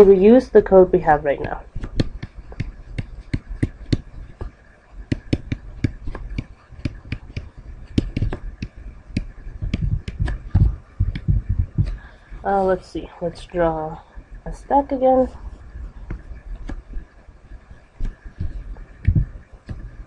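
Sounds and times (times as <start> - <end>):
stylus tapping on a tablet: 1.4 - 12.0, 18.0 - 20.0.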